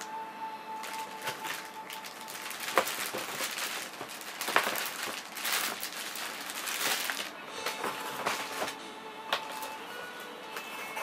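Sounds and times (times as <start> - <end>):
plastic bag crinkling: 0.8 - 8.8.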